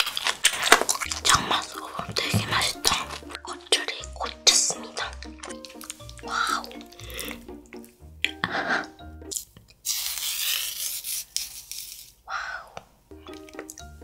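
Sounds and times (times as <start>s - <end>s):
wet cabbage squelching and tearing: 0.0s - 7.8s, 9.4s - 12.2s
light background music: 0.9s - 9.5s, 13.1s - 14.0s.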